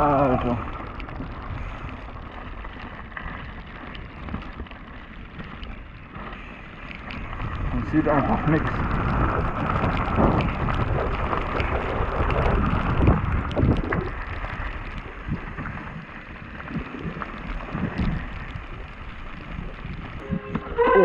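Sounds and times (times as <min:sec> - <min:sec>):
bike rattling over bumps: 0:00.0 - 0:21.0
tyres rolling over gravel: 0:00.0 - 0:21.0
wind rushing over microphone: 0:00.0 - 0:21.0.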